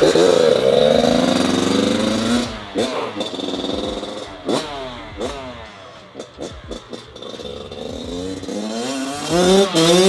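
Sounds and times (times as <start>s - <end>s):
dirt bike engine revving: 0.0s - 10.0s.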